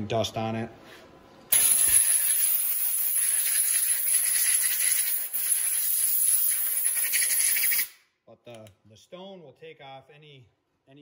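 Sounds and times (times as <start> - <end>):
compressed air hissing: 1.5 - 8.0.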